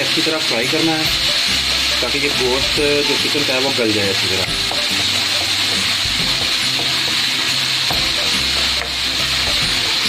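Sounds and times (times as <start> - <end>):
chicken sizzling in frying pan: 0.0 - 10.0
spatula stirring in pan: 0.0 - 10.0.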